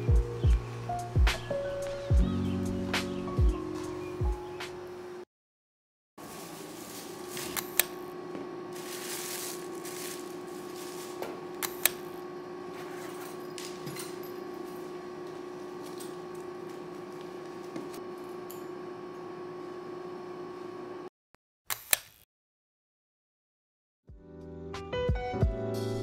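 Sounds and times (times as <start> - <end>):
plastic wrapping rustling: 6.2 - 8.1, 8.7 - 13.8
steady hum: 6.2 - 21.1.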